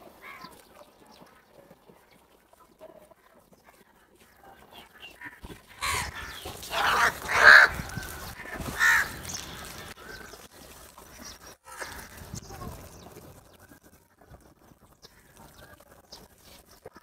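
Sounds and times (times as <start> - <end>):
crows cawing: 0.2 - 0.5, 5.2 - 10.4, 11.6 - 12.3.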